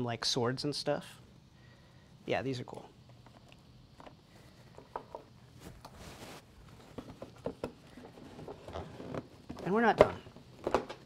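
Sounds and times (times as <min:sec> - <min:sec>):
rustling scrape: 0:05.5 - 0:07.2.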